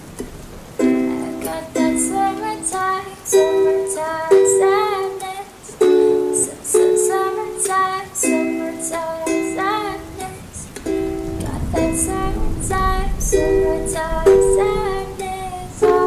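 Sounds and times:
ukulele melody: 0.0 - 16.0.

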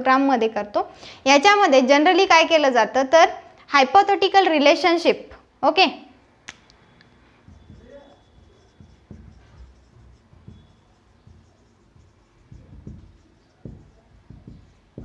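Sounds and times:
marker writing on whiteboard: 6.2 - 15.0.

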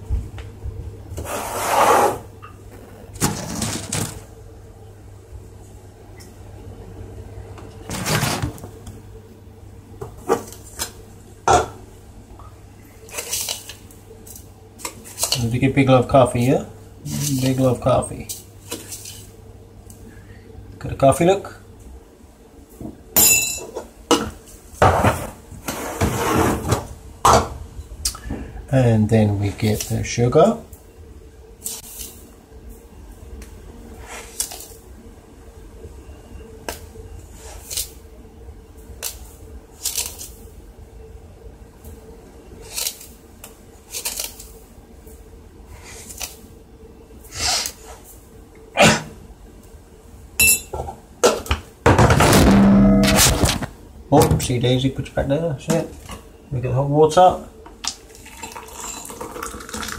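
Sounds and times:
kitchenware handling noise: 10.0 - 11.8, 23.2 - 25.3
mug and spoon clinking: 58.3 - 59.5.

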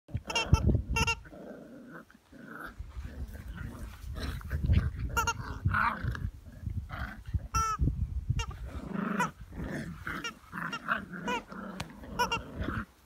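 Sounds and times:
puppies play growling: 0.1 - 7.8, 8.4 - 13.0
puppies yapping: 10.2 - 12.9.

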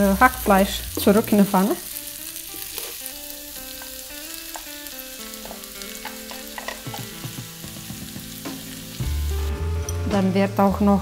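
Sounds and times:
food sizzling in a frying pan: 0.0 - 11.0
spatula knocking and scraping pan: 3.7 - 8.8.

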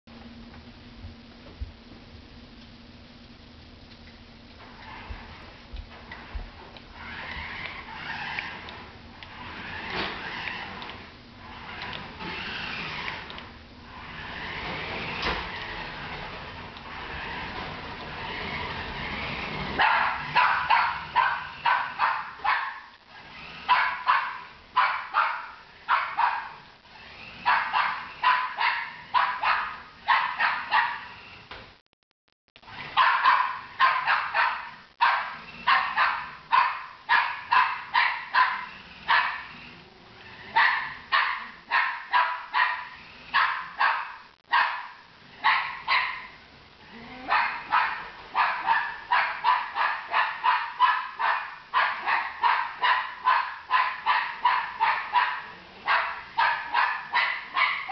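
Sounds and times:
dog barking rapidly: 19.7 - 22.9, 23.5 - 26.6, 27.4 - 31.2, 32.8 - 39.6, 40.5 - 46.4, 47.2 - 57.9.

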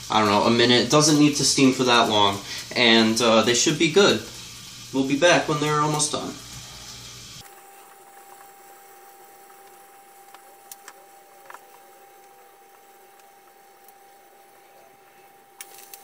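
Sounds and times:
low hiss: 0.0 - 16.0
faint high whine: 2.7 - 16.0.

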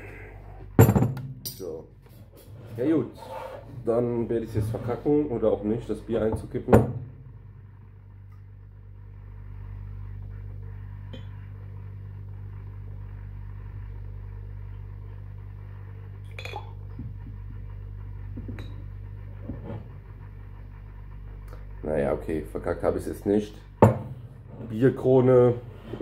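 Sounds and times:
steady low hum: 0.0 - 26.0
beer pouring into glass: 16.2 - 16.8
glass clinking on glass: 16.3 - 16.8.

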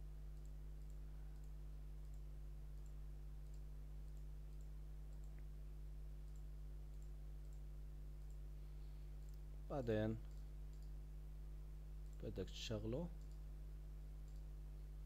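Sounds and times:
low electrical hum: 0.0 - 15.0
computer mouse clicks: 0.4 - 5.5, 6.2 - 8.4, 9.2 - 9.4, 10.2 - 11.0, 13.2 - 13.5, 14.2 - 14.5.

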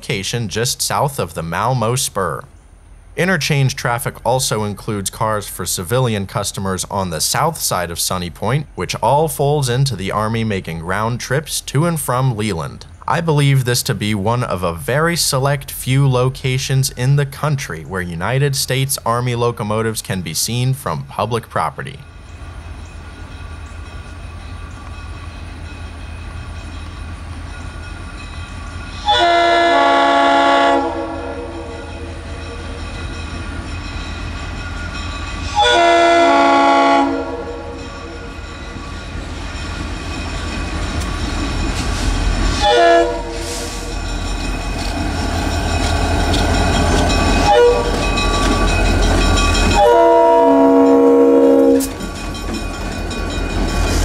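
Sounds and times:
locomotive engines rumbling: 0.0 - 54.0
train air horn blasts: 29.0 - 32.1, 35.5 - 37.8, 42.6 - 43.9, 47.4 - 48.0, 49.8 - 51.9.

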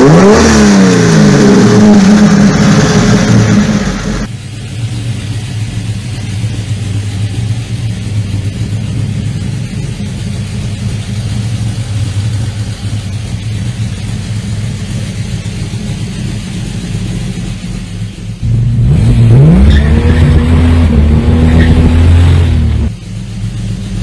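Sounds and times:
car engine revving pulling away: 0.0 - 4.3, 18.4 - 23.0
car engine idling: 0.0 - 24.0.

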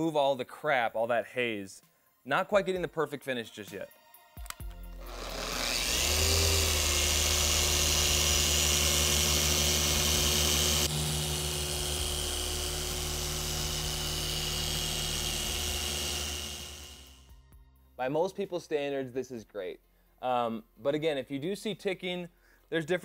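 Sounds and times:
polisher running on car paint: 5.0 - 17.3.

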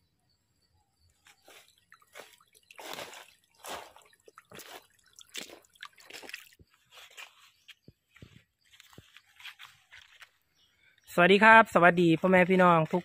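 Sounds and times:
footsteps on wet leaves and stones: 1.2 - 10.4.

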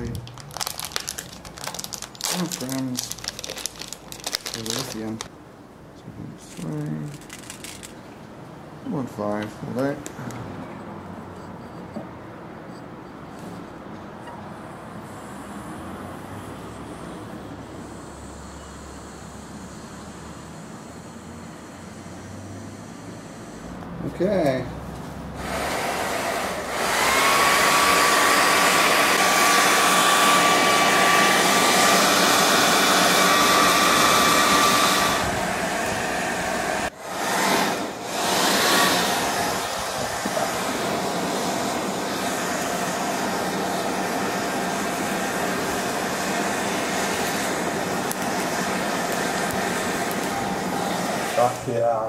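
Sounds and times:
hair dryer blowing air: 25.4 - 51.7.

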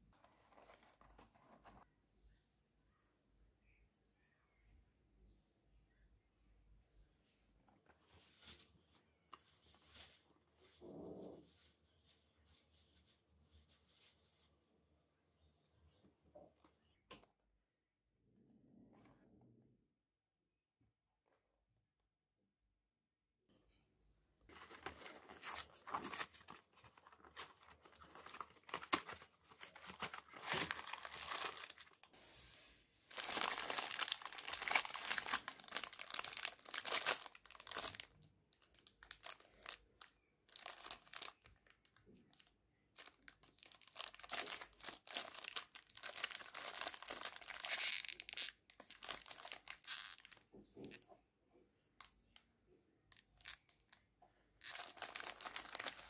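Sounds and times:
cardboard carton opened: 24.5 - 31.9
plastic packets crinkling: 24.5 - 32.1, 33.1 - 50.4, 54.6 - 56.0.

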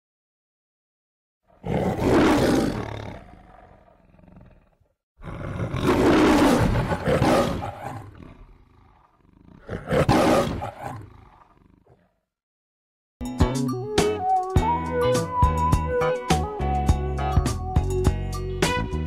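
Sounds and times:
lion roaring: 1.5 - 12.2.

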